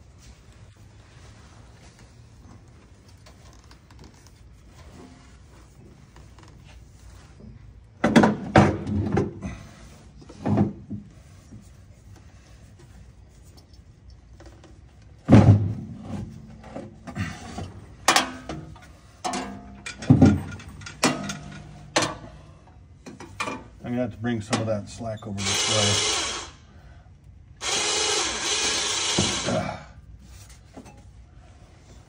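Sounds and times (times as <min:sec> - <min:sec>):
metal parts clunking: 0:18.0 - 0:22.3.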